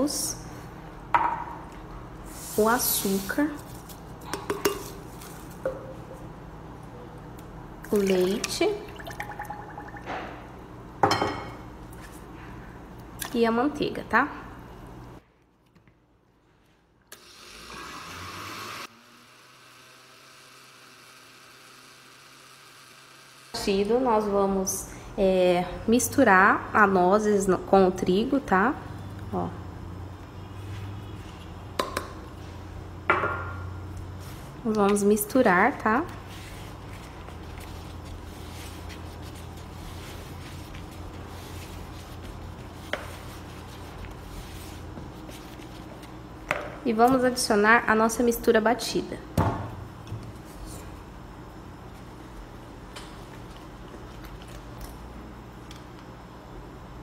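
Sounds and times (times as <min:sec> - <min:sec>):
electric blender running: 0:17.1 - 0:23.6.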